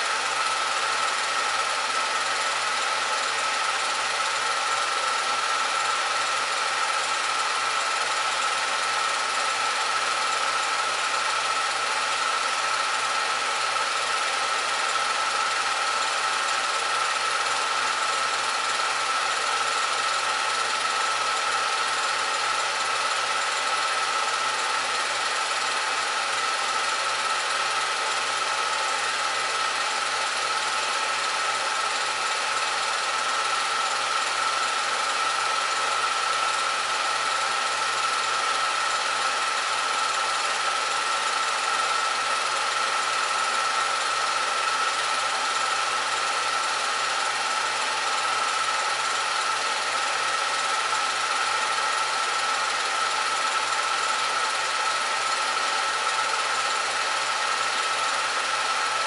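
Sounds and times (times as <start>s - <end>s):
film projector whirring: 0.0s - 59.0s.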